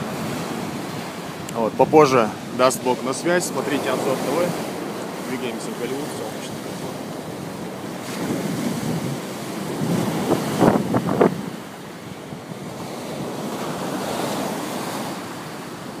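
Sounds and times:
sea waves breaking on beach: 0:00.0 - 0:16.0
wind buffeting microphone: 0:00.0 - 0:16.0.

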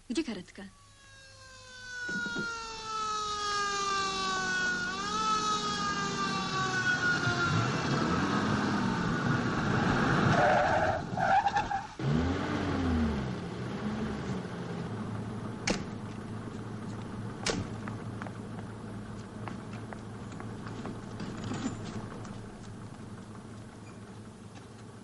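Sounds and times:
low wavering tone: 0:00.7 - 0:02.4
van engine and tyres: 0:02.0 - 0:25.0.

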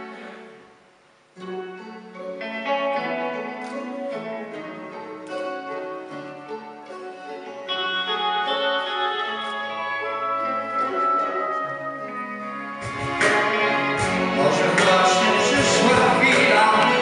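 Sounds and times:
small band playing a ballad: 0:06.9 - 0:17.0.

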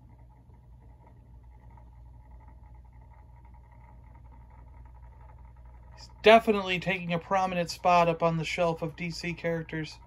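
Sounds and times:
motorised turntable humming: 0:00.0 - 0:10.0.

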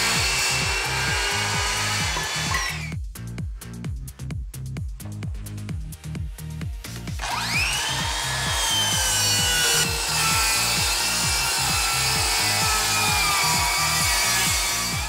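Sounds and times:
circular saw cutting wood: 0:00.0 - 0:03.0, 0:07.2 - 0:15.0
electronic music with steady beat: 0:00.0 - 0:15.0.

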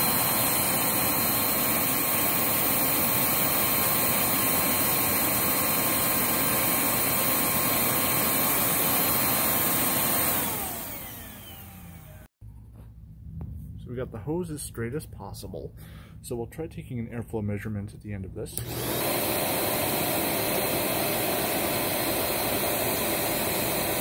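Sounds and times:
vacuum cleaner motor whining: 0:00.0 - 0:12.3, 0:18.6 - 0:24.0.

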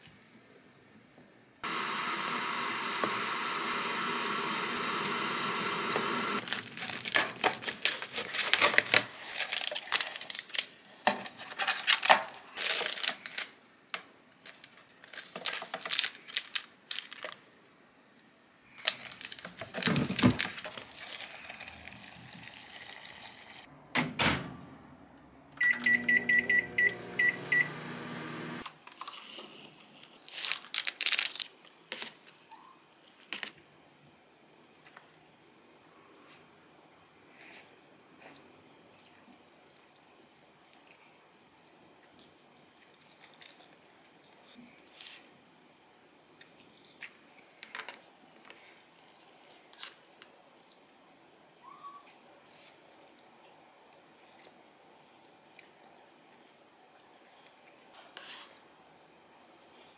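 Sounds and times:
steady appliance hum: 0:01.6 - 0:07.7, 0:23.5 - 0:28.7
packaging crinkling and tearing: 0:06.4 - 0:13.6, 0:14.4 - 0:17.5, 0:18.7 - 0:23.7, 0:28.6 - 0:32.4, 0:33.0 - 0:33.6
appliance short beeps: 0:25.6 - 0:28.2.

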